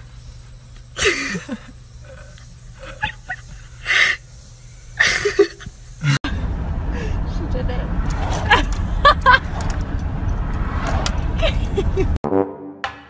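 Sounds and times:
chimpanzee huffing: 0:01.3 - 0:04.3
low rumble inside a moving car: 0:05.7 - 0:12.2.

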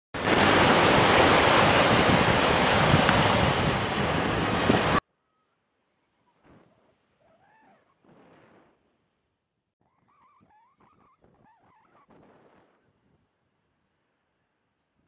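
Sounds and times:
sea waves breaking on beach: 0:00.2 - 0:05.0
wind noise on microphone: 0:00.2 - 0:05.0.

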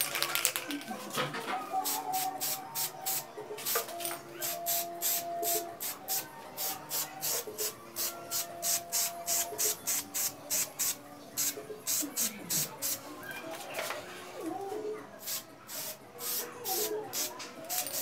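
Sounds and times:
spray paint can hissing: 0:01.8 - 0:13.0, 0:15.2 - 0:18.0.

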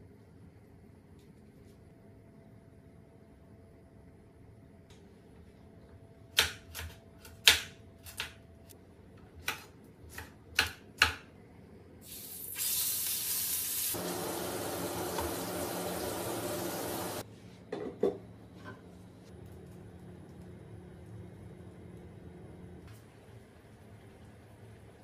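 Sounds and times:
knife chopping on wooden board: 0:06.4 - 0:08.4
hot pan sizzling: 0:12.0 - 0:17.2.

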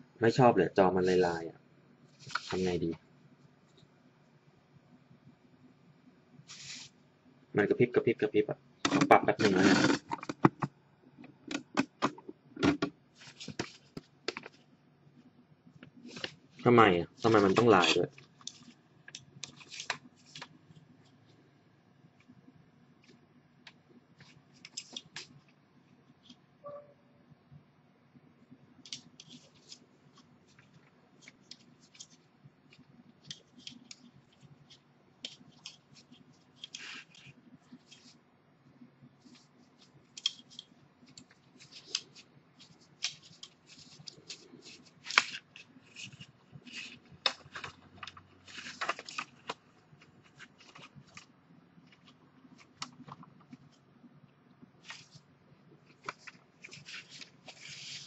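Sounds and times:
soft rustling: 0:06.5 - 0:07.0, 0:13.1 - 0:14.7, 0:54.6 - 0:58.0.

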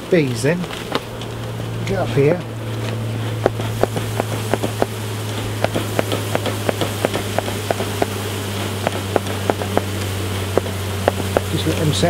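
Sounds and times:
honeybees buzzing: 0:00.0 - 0:12.0
smoker bellows puffing: 0:00.0 - 0:12.0.

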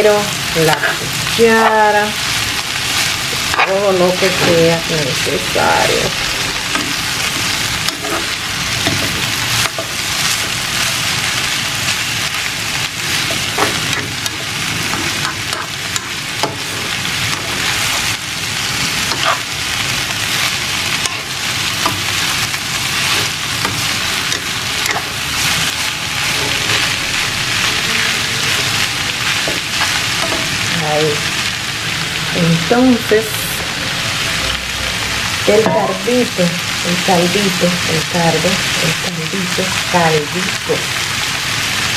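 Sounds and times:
food sizzling in a frying pan: 0:00.0 - 0:41.9
tongs scraping a pan: 0:07.8 - 0:10.6, 0:19.0 - 0:19.6, 0:23.0 - 0:27.0.

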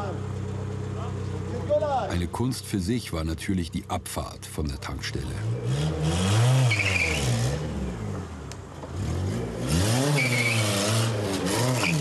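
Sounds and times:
car engine revving: 0:04.8 - 0:12.0
short high squeal: 0:06.7 - 0:07.3, 0:10.1 - 0:10.8.

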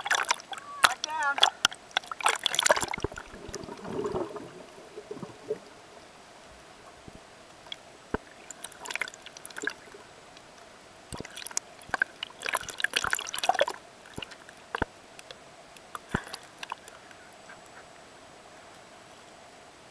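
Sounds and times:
underwater clicks: 0:00.0 - 0:05.8, 0:07.5 - 0:17.0
underwater bubbling and splashing: 0:00.0 - 0:17.0
faint steady hum: 0:00.0 - 0:19.9.

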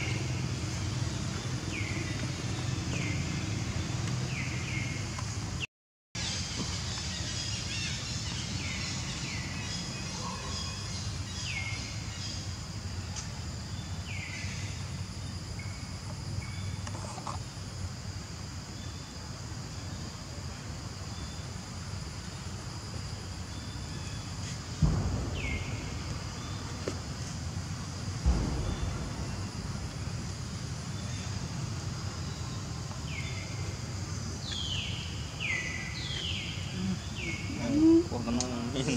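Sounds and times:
high insect drone: 0:00.0 - 0:05.6, 0:06.2 - 0:38.9
loud thump: 0:24.7 - 0:31.6
low rumble: 0:24.7 - 0:33.0.

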